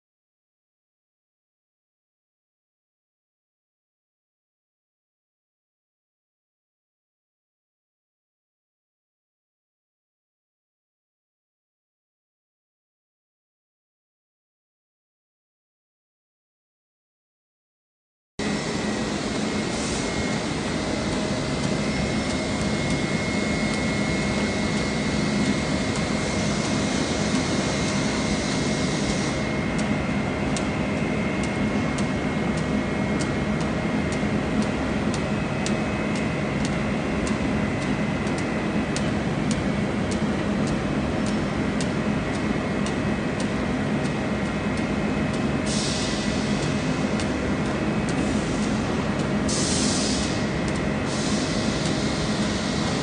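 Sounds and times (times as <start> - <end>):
machinery droning: 18.4 - 53.0.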